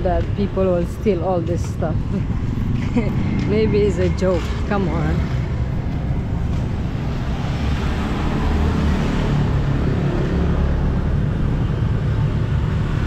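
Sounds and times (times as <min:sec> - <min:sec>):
traffic engine rumble: 0:00.0 - 0:13.0.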